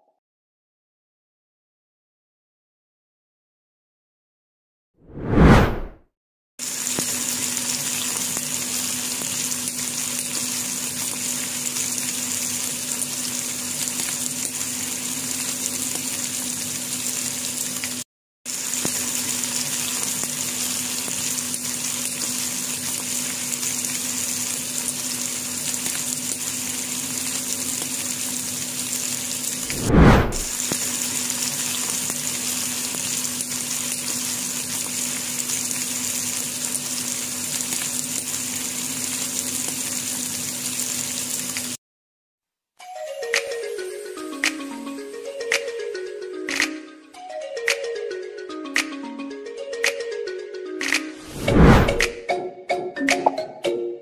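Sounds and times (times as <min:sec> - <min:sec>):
kebabs sizzling in oil: 0:06.6 - 0:41.8, 0:51.2 - 0:52.1.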